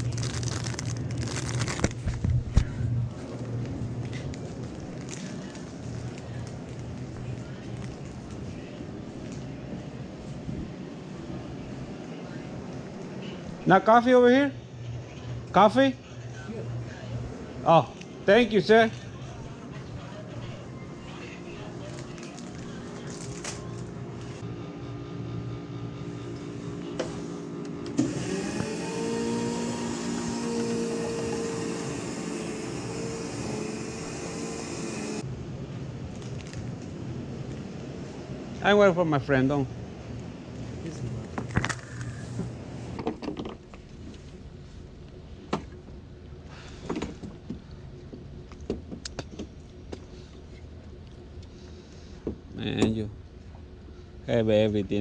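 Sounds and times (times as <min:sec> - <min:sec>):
drink machines humming: 0:00.0 - 0:35.5.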